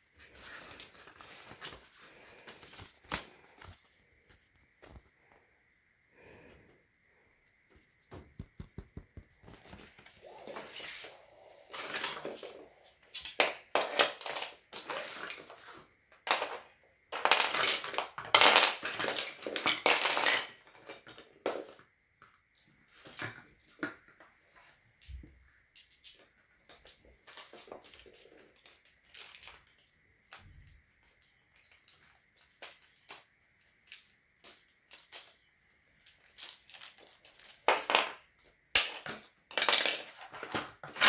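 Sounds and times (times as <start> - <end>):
wooden toy pieces clattering: 16.2 - 21.7, 36.1 - 41.0.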